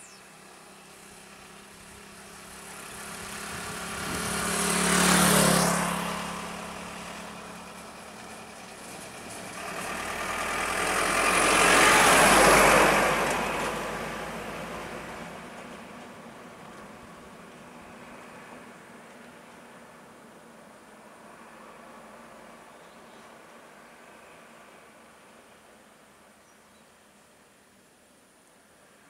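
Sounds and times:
motorcycle passing: 0:00.0 - 0:15.3
diesel truck passing: 0:00.0 - 0:18.7.

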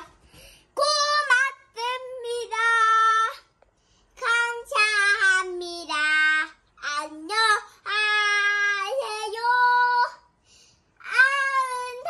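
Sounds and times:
girl singing unaccompanied: 0:00.0 - 0:10.4, 0:11.0 - 0:12.0.

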